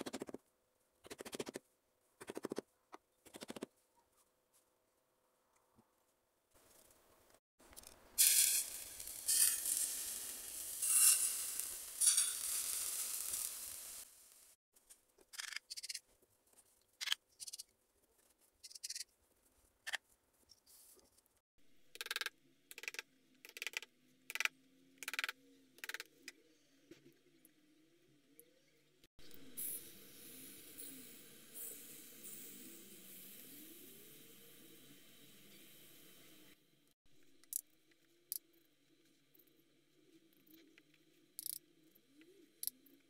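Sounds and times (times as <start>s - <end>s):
molten metal hissing: 8.2s - 14.6s.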